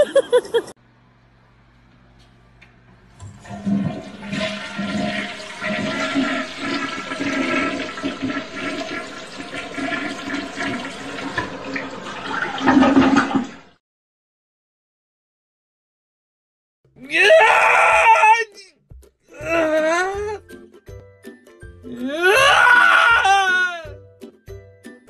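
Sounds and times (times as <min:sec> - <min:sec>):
toilet flushing: 0:03.2 - 0:13.8.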